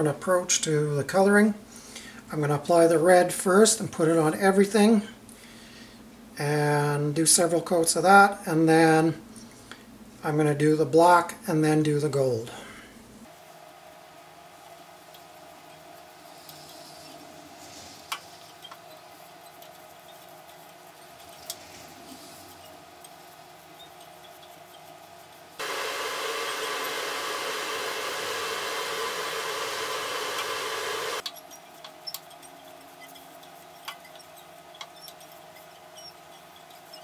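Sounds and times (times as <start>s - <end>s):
rushing blower noise: 25.6s - 31.2s.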